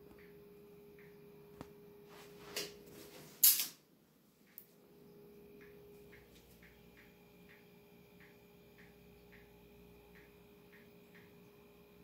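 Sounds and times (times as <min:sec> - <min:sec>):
faint steady hum: 0:00.0 - 0:12.0
soft ticks: 0:08.2 - 0:09.5, 0:10.1 - 0:11.3.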